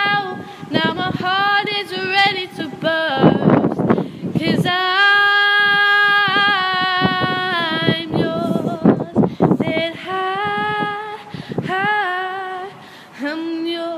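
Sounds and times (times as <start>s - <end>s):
girl singing: 0.0s - 13.9s
breaths: 0.4s - 0.7s, 3.8s - 4.4s, 9.2s - 9.6s, 11.2s - 11.7s, 12.7s - 13.2s.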